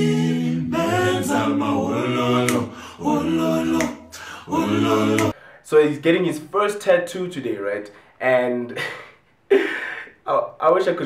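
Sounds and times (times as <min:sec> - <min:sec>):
man singing a cappella: 0:00.0 - 0:05.4.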